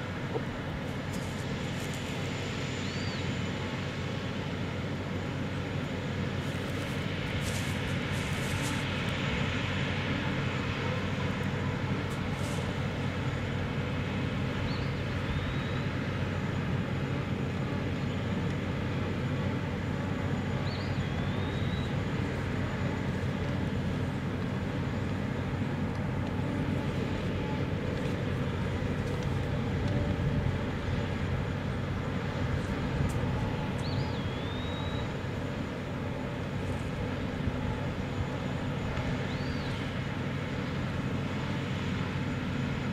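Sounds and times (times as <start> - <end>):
heavy equipment droning: 0.0 - 42.9
faint short high whistles: 33.8 - 35.1.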